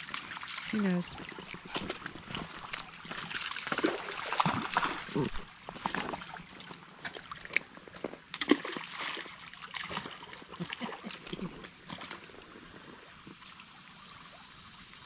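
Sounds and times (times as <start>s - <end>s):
water sloshing and splashing: 0.0s - 14.5s.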